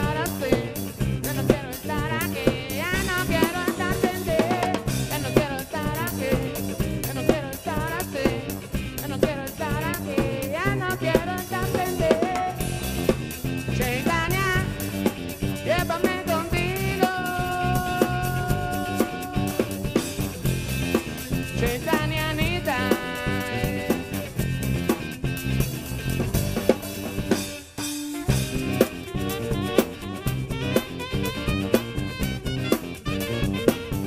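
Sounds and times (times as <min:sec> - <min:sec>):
saxophone: 0:00.0 - 0:24.5, 0:27.8 - 0:34.0
drum kit beat: 0:00.0 - 0:34.0
electric bass line: 0:00.0 - 0:34.0
wavering lead melody: 0:27.3 - 0:34.0
trumpet: 0:28.0 - 0:34.0.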